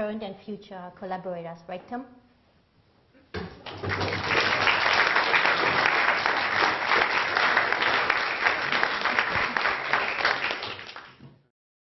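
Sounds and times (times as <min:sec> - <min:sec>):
audience applauding: 0:03.6 - 0:11.2.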